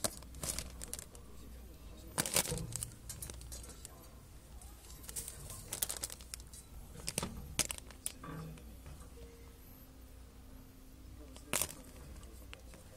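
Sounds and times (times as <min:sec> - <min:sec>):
plastic bags crinkling: 0:00.0 - 0:01.2, 0:02.2 - 0:04.0, 0:04.8 - 0:08.2, 0:11.4 - 0:12.3.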